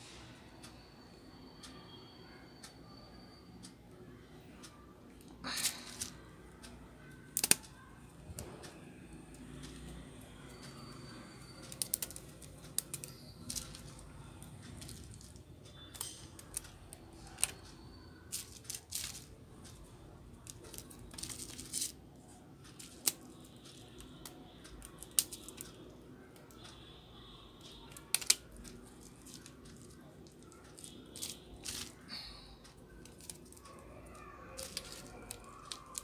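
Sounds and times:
rubber bands snapping: 7.2 - 7.7, 11.7 - 16.6, 27.7 - 32.1.

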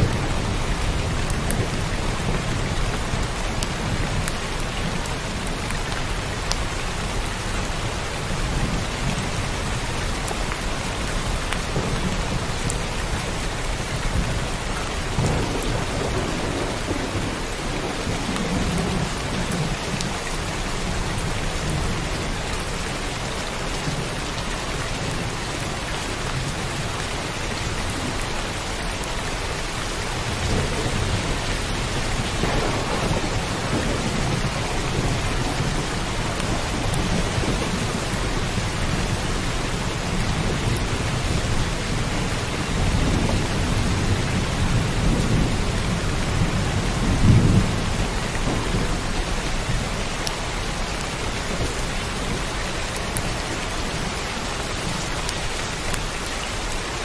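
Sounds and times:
heavy rain pouring: 0.0 - 57.0
thunder rumbling: 11.3 - 20.3, 30.1 - 53.0.

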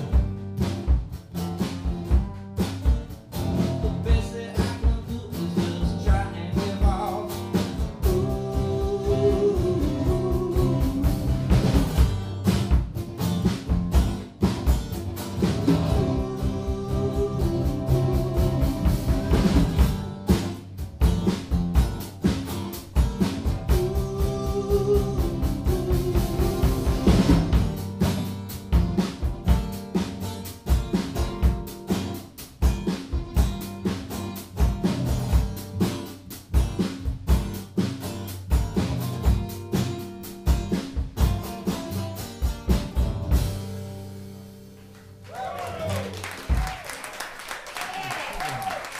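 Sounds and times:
acoustic guitars strumming: 0.0 - 45.2
drum kit beat: 0.0 - 48.9
man singing: 3.6 - 11.8, 15.8 - 19.8, 23.6 - 27.4.

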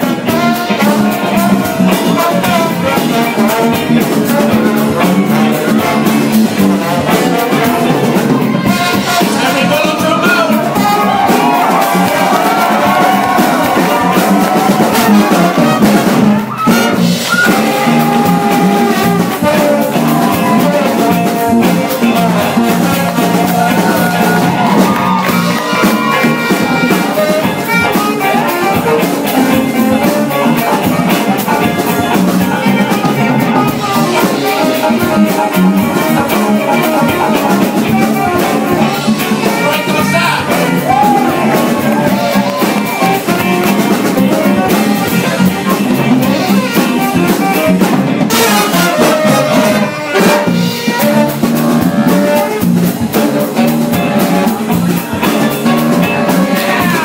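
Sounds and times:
jazz big band playing: 0.0 - 57.0.

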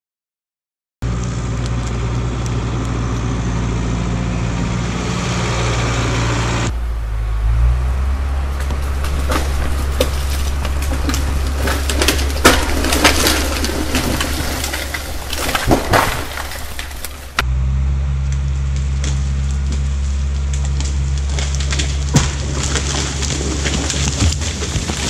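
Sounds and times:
diesel engine running: 1.0 - 25.0
branches cracking and snapping: 8.2 - 17.4, 18.3 - 25.0.

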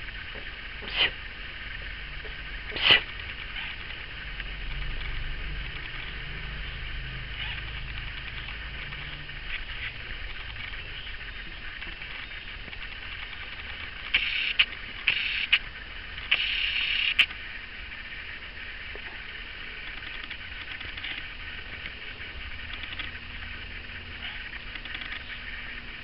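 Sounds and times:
tortoise hissing: 0.8 - 1.3, 2.6 - 3.1, 14.1 - 15.6, 16.3 - 17.3
sharp clicks: 11.8 - 15.6, 16.2 - 17.4, 24.7 - 25.3.

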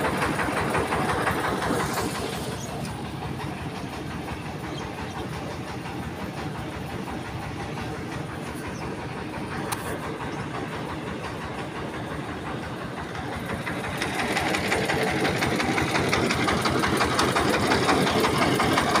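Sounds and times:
small engine knocking: 0.0 - 19.0.

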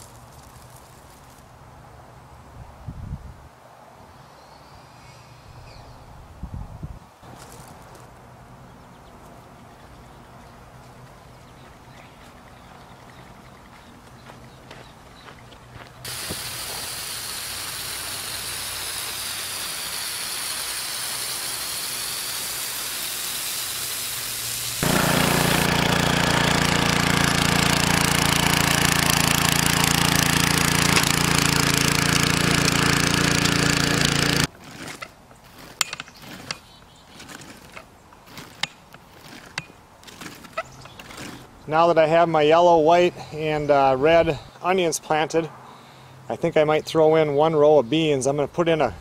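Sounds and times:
hoe knocking soil: 16.0 - 23.2, 24.8 - 41.5
garden tiller engine running: 16.0 - 41.6
steady hiss: 16.1 - 25.7.

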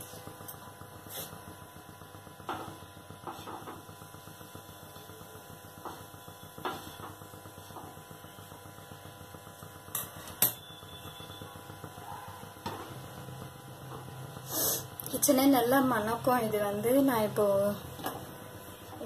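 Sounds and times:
bread tapping on flat pan: 5.8 - 8.0.

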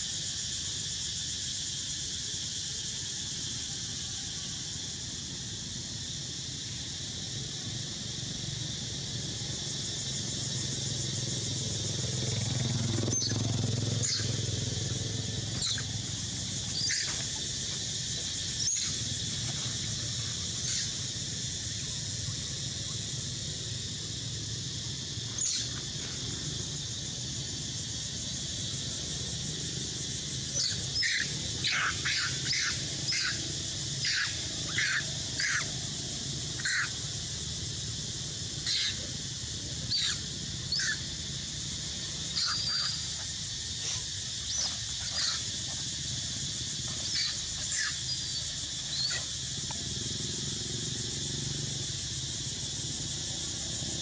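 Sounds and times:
monkey squeals: 48.9 - 49.3.

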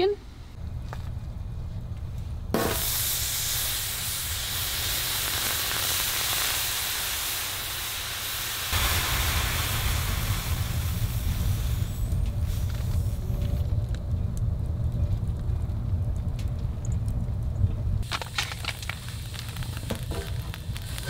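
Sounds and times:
water hissing on hot stove: 2.6 - 13.7, 18.0 - 21.0
low rumble: 8.8 - 21.0.

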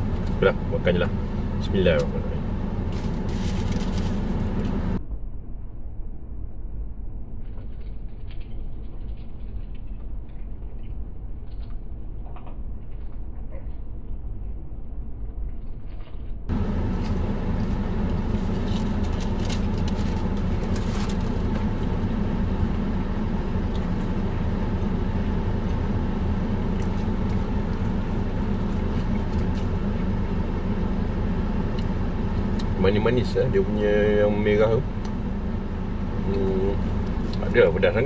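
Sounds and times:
car engine and air-conditioning hum: 0.0 - 38.0
crunching and chewing fried chicken: 2.8 - 4.8, 7.4 - 14.1, 15.4 - 32.8, 35.0 - 37.7.

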